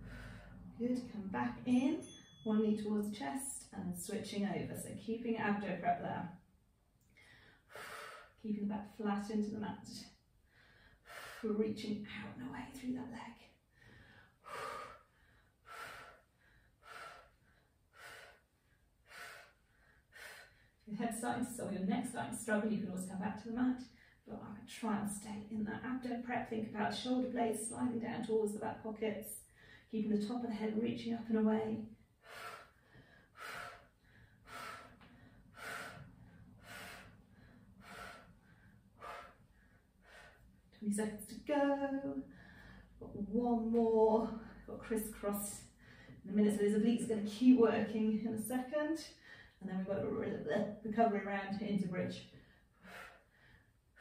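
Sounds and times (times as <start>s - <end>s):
woman breathing hard: 0.0s - 0.8s, 7.2s - 8.4s, 10.4s - 11.4s, 13.7s - 20.8s, 32.1s - 40.7s, 42.2s - 43.0s, 45.8s - 46.2s, 52.3s - 53.8s.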